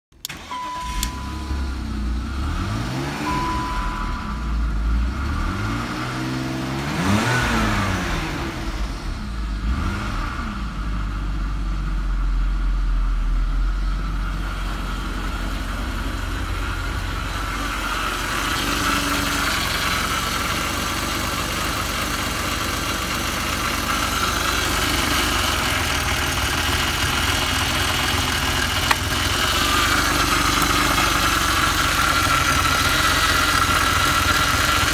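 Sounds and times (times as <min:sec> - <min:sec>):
engine mechanical chatter: 0:00.2 - 0:06.0, 0:11.9 - 0:34.9
car engine revving and idling: 0:00.2 - 0:34.9
dashboard chime: 0:00.4 - 0:02.0, 0:03.1 - 0:04.8.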